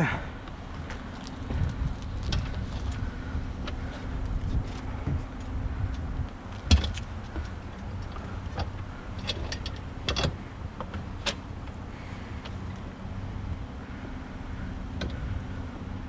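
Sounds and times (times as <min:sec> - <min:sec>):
low steady hum: 0:00.0 - 0:16.0
bicycle knocking in truck bed: 0:00.8 - 0:11.4.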